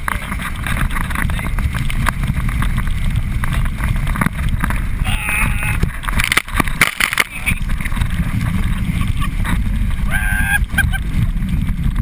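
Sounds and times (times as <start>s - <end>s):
wind buffeting microphone: 0.0s - 12.0s
person yelling: 5.0s - 5.8s, 10.1s - 10.6s.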